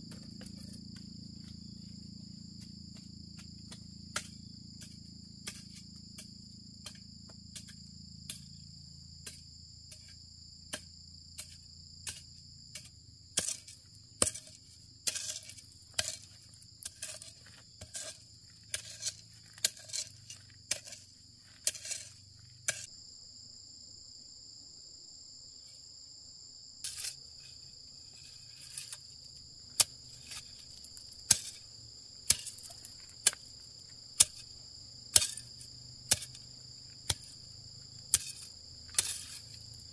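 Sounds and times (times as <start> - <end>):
insects chirring: 0.0 - 39.9
blade chopping into soil: 3.7 - 7.0, 10.7 - 22.9, 29.7 - 31.6, 32.2 - 33.6, 34.2 - 34.5, 35.1 - 37.4, 38.1 - 39.9.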